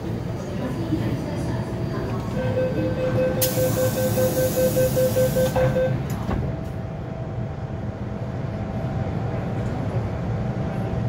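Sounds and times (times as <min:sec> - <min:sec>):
rapid warning beeps: 0:02.4 - 0:06.0.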